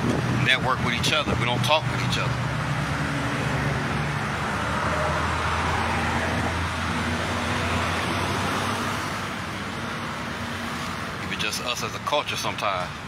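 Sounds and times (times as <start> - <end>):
tyre and road noise: 0.0 - 13.0
vehicle engine hum: 0.0 - 13.0.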